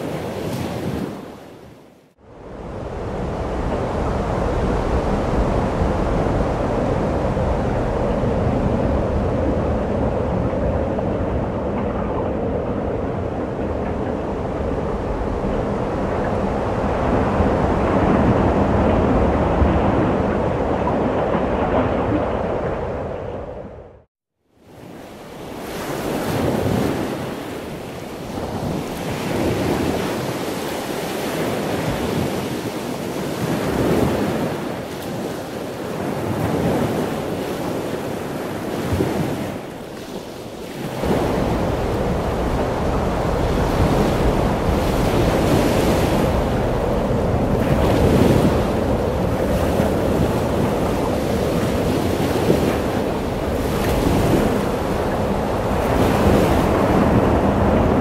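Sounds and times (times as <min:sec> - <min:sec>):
ocean surf breaking: 0:00.0 - 0:23.8, 0:24.6 - 0:58.0
wind on microphone: 0:00.0 - 0:58.0.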